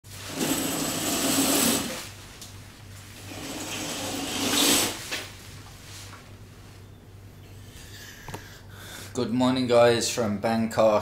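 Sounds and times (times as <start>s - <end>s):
curtains swishing along rail: 3.4s - 5.3s.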